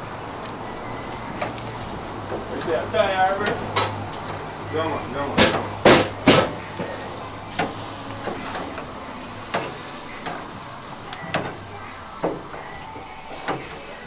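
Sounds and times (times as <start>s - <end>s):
chicken sizzling on a grill: 0.0s - 14.0s
metal tongs clicking on grate: 1.4s - 4.6s, 5.4s - 14.0s.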